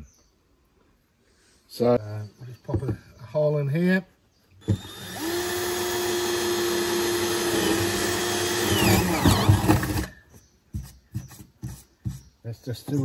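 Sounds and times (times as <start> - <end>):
cordless drill boring: 4.6 - 10.2.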